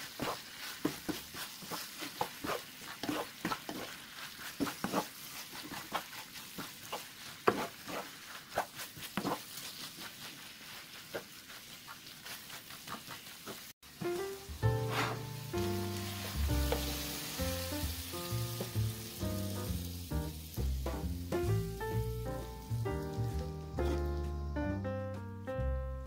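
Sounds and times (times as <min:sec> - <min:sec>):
wooden spatula scraping pan: 0:00.0 - 0:19.0, 0:23.2 - 0:24.2
food sizzling: 0:00.0 - 0:24.8.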